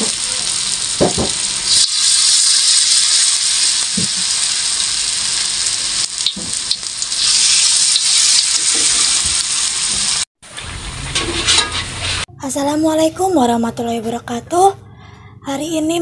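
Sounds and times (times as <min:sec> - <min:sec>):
batter sizzling in hot oil: 0:00.0 - 0:12.3.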